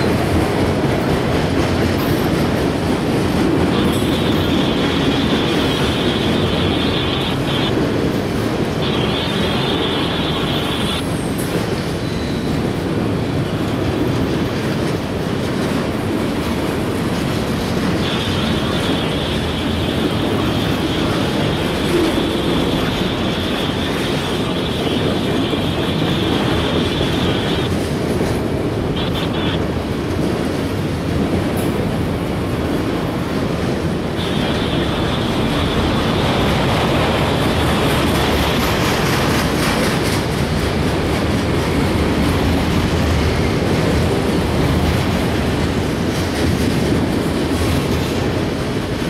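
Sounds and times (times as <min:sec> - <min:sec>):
train wheels rumbling over rail joints: 0:00.0 - 0:49.0
high wheel squeal: 0:08.8 - 0:12.6.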